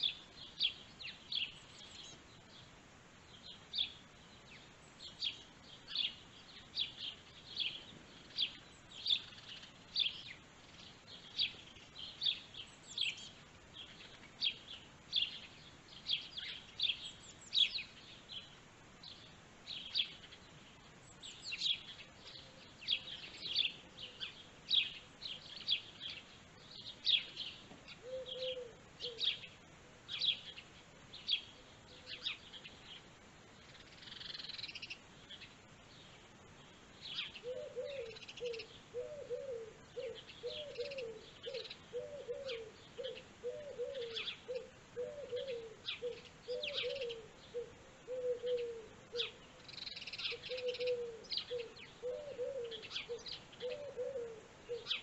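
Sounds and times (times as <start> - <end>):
birds chirping: 0.0 - 55.0
low bird call: 21.3 - 30.6, 37.1 - 55.0.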